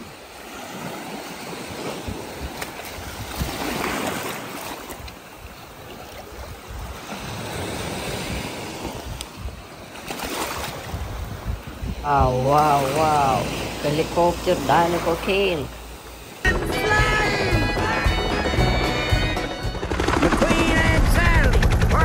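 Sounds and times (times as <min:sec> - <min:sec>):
wind rumbling on microphone: 0:00.0 - 0:14.8
small waves washing on sand: 0:00.0 - 0:17.4.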